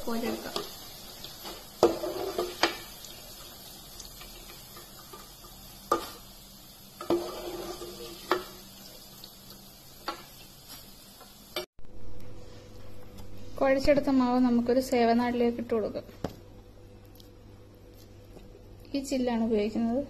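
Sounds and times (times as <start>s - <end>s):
lentils sizzling in hot oil: 0.0s - 11.7s
metal ladle scraping pan: 1.4s - 2.9s, 7.0s - 8.5s.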